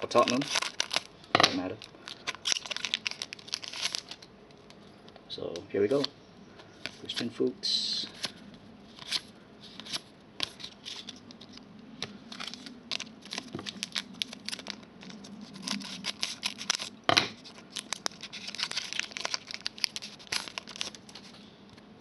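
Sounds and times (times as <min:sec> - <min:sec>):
wrapper tearing and crinkling: 0:00.0 - 0:04.8, 0:08.1 - 0:21.4
cards being flipped: 0:08.1 - 0:21.3.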